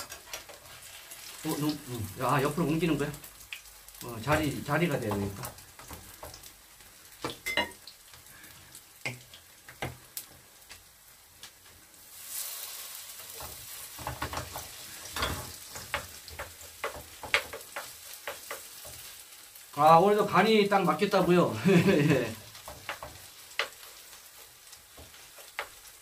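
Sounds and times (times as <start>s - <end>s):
batter sizzling in oil: 0.0s - 26.0s
utensils tapping a pan: 4.2s - 6.5s, 13.2s - 19.2s, 21.0s - 24.1s, 24.8s - 26.0s.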